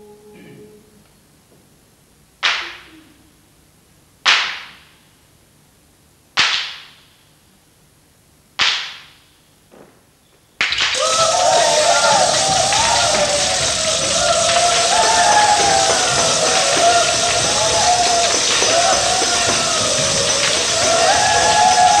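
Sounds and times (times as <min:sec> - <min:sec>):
sharp cracks in reverberant hall: 0:02.4 - 0:03.1, 0:04.2 - 0:05.3, 0:06.4 - 0:07.4, 0:08.6 - 0:22.0.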